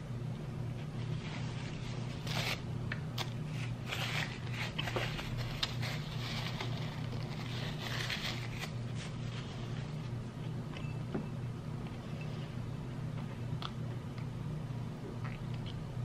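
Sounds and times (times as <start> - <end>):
steady low hum: 0.0 - 16.0
paper napkin crinkling: 3.2 - 10.1.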